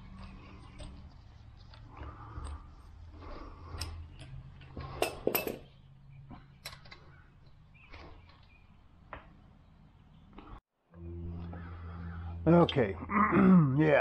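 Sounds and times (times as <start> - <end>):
clicks and knocks of parts: 0.0 - 9.4
low steady hum: 0.0 - 13.8.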